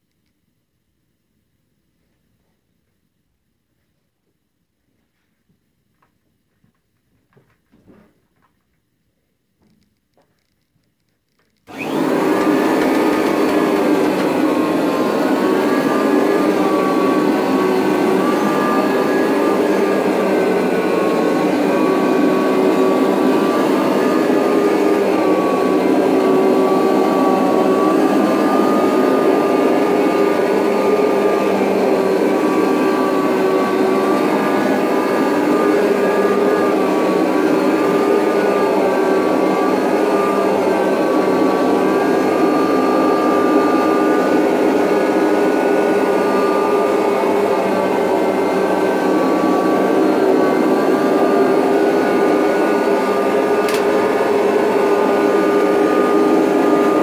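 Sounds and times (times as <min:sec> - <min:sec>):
vacuum cleaner motor whine: 0:11.7 - 0:57.0.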